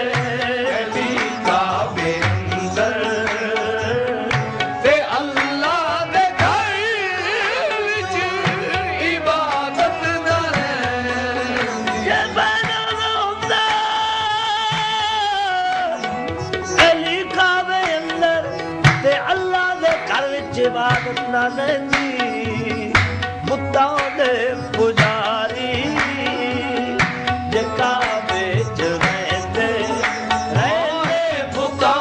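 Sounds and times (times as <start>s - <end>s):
harmonium chords: 0.0s - 32.0s
man singing: 0.0s - 32.0s
tabla beats: 0.0s - 32.0s.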